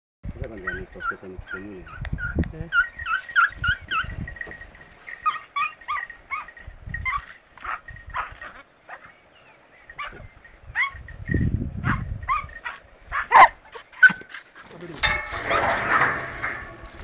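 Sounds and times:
dog yelping: 0:01.9 - 0:04.1, 0:05.2 - 0:09.1, 0:10.0 - 0:11.0, 0:11.8 - 0:14.4
rustling: 0:14.1 - 0:17.0.

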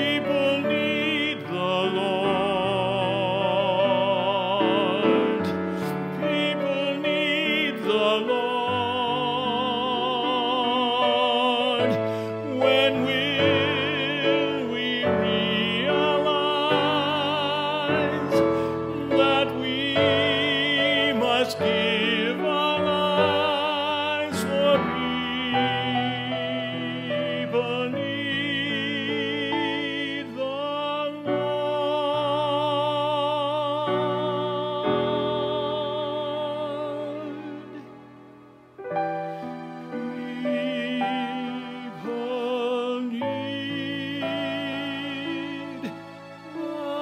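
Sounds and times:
man singing with vibrato: 0:00.0 - 0:38.4, 0:39.0 - 0:47.0
piano: 0:00.0 - 0:47.0.

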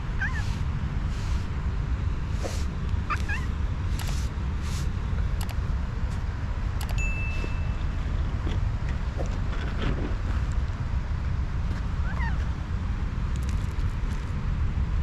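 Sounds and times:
wind rumble on microphone: 0:00.0 - 0:15.0
cat crying: 0:00.1 - 0:00.6, 0:03.0 - 0:03.5, 0:12.0 - 0:12.5
cat hissing: 0:00.2 - 0:01.5, 0:02.3 - 0:04.9
sharp clicks: 0:03.9 - 0:04.2, 0:05.4 - 0:05.6, 0:06.8 - 0:07.0
held high tone: 0:07.0 - 0:08.1.

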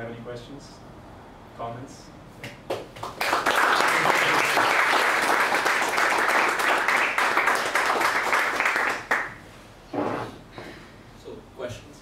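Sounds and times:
audience applauding: 0:03.0 - 0:09.4.

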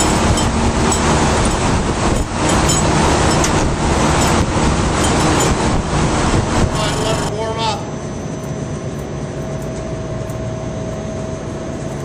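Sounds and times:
machinery roaring: 0:00.0 - 0:08.1.

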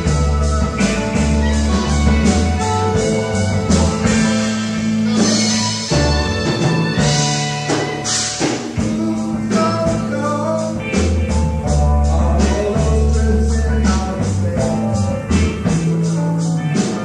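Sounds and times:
live rock band playing: 0:00.0 - 0:17.0
steady bass line: 0:00.0 - 0:17.0.

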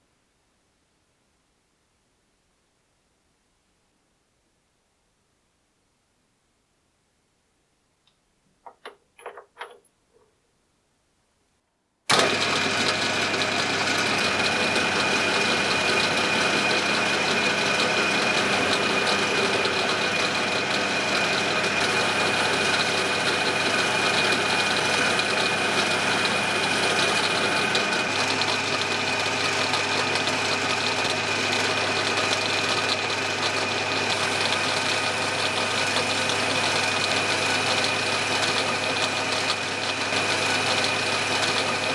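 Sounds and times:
metal lathe running with whine: 0:12.1 - 0:41.9.

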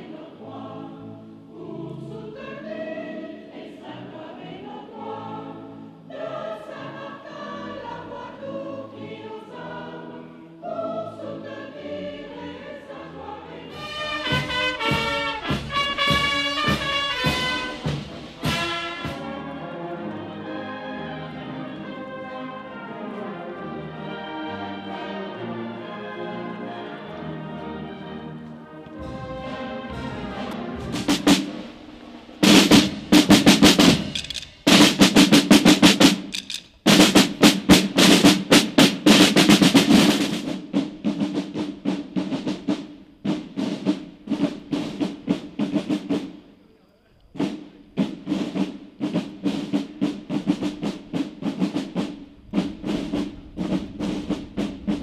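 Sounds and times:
marching snare drums: 0:13.8 - 0:19.3, 0:28.9 - 0:46.5, 0:47.4 - 0:55.0.

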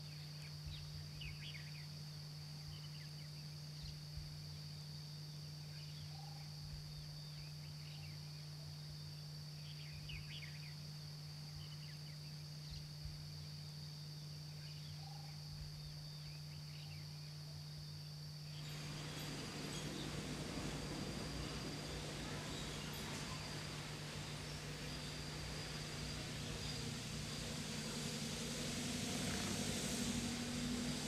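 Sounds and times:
constant low hum: 0:00.0 - 0:31.0
high insect drone: 0:00.0 - 0:31.0
loud hiss: 0:18.5 - 0:31.0.

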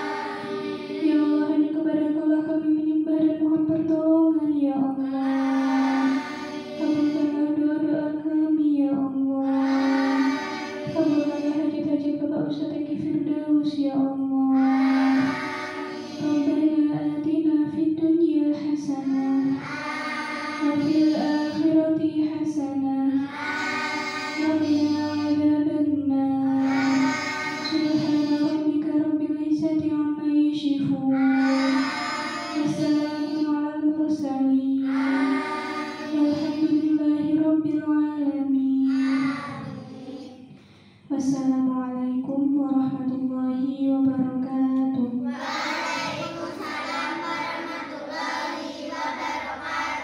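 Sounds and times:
girls singing a devotional chant: 0:00.0 - 0:01.8, 0:05.0 - 0:07.9, 0:09.4 - 0:11.8, 0:14.6 - 0:17.8, 0:18.8 - 0:22.5, 0:23.1 - 0:25.6, 0:26.5 - 0:28.7, 0:31.1 - 0:33.5, 0:34.8 - 0:37.7, 0:38.8 - 0:40.5, 0:45.2 - 0:50.0.

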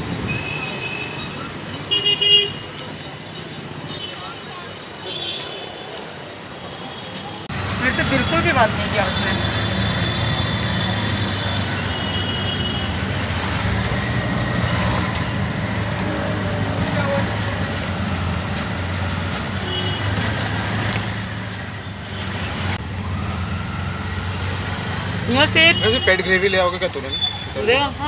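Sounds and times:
road and traffic noise: 0:00.0 - 0:28.0
auto-rickshaw engine drone: 0:07.4 - 0:28.0.

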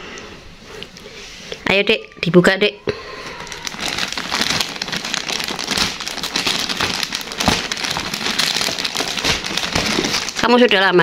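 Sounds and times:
plastic wrapping crinkling: 0:03.1 - 0:11.0.

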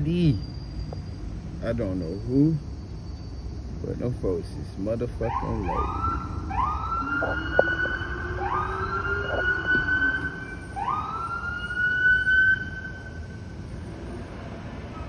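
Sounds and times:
police siren wailing: 0:05.1 - 0:13.4.

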